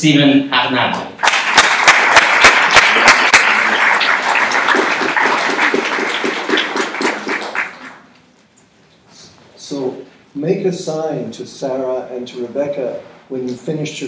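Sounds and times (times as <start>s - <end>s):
audience applauding: 1.2s - 8.1s.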